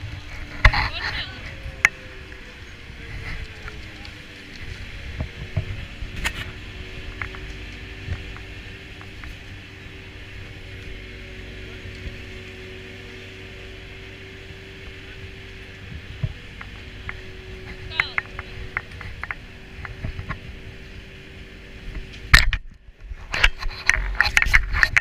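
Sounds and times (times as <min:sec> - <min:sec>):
low rumble: 0:00.0 - 0:25.0
machinery humming: 0:00.0 - 0:25.0
skis and poles clacking: 0:22.0 - 0:25.0.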